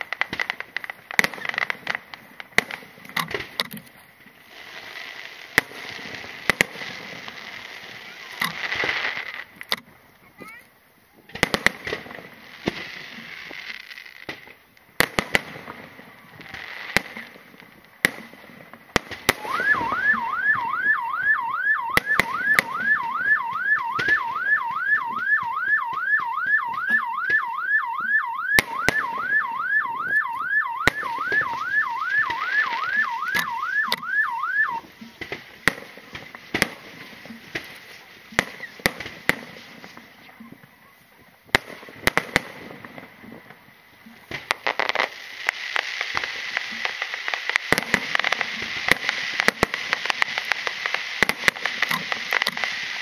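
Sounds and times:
fireworks bangs and crackles: 0.0 - 53.0
electronic alarm wailing: 19.4 - 34.9.

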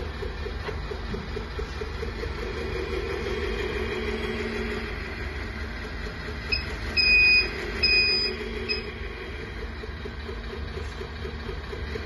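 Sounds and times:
simulated truck engine from speaker: 0.0 - 12.0
high-pitched electronic beeps: 6.5 - 8.9.

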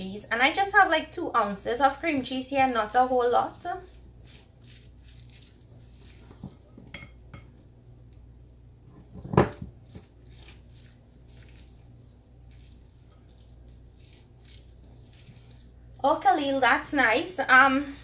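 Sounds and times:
utensil scraping and clinking bowl: 1.5 - 7.6.

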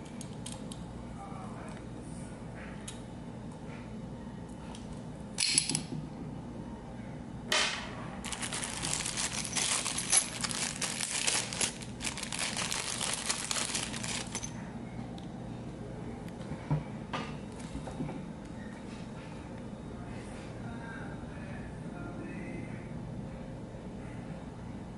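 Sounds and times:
plastic bag crinkling: 8.2 - 14.5.

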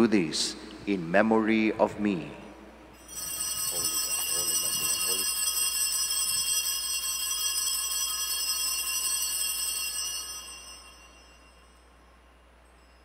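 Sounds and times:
altar bells ringing: 3.0 - 12.2.

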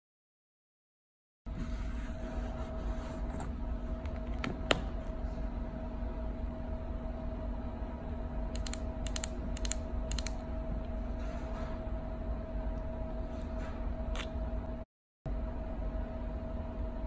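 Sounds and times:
steady low hum: 1.5 - 17.0.

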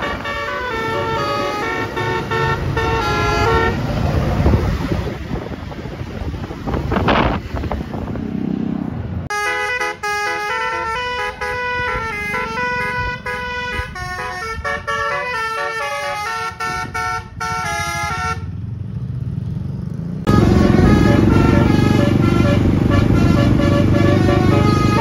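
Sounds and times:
bus musical horn tune: 0.0 - 3.9, 9.3 - 18.5, 20.3 - 25.0
low vehicle rumble: 0.0 - 9.4, 10.0 - 25.0.

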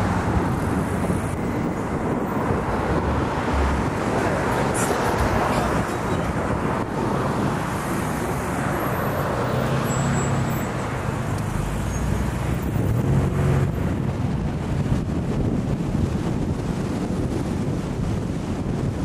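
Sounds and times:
road traffic: 0.0 - 19.0.

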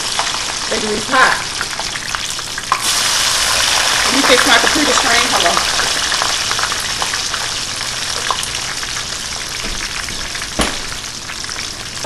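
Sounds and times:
fries sizzling in grease: 0.0 - 12.0
sharp knock: 10.6 - 11.0.

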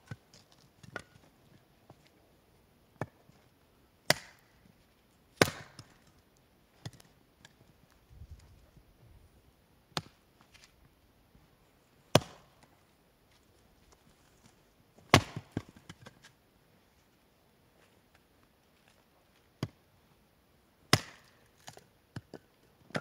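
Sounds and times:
axe splitting wood: 4.1 - 4.4, 5.4 - 6.0, 12.1 - 12.5, 15.1 - 15.9, 20.9 - 23.0.

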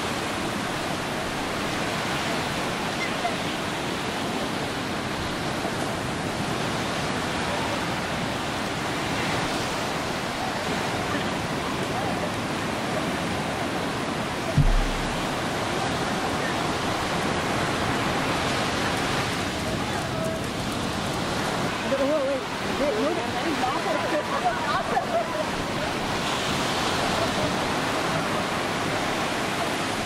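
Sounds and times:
ocean surf breaking: 0.0 - 30.0
low thump: 14.6 - 15.4.

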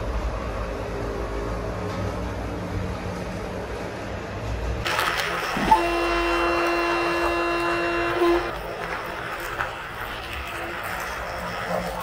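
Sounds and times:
passing train rumble: 0.0 - 5.8
train horn: 5.6 - 8.6.

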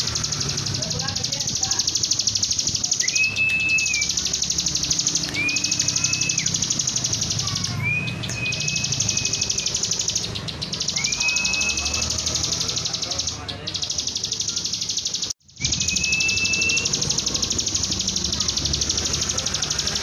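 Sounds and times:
bird singing buzzy trill: 0.0 - 20.0
long whistled notes: 15.6 - 17.1.

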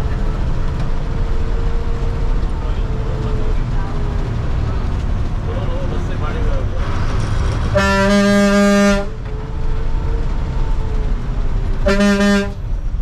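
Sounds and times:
bus engine rumble: 0.0 - 13.0
bus horn blasts: 7.7 - 9.2, 11.8 - 12.6.

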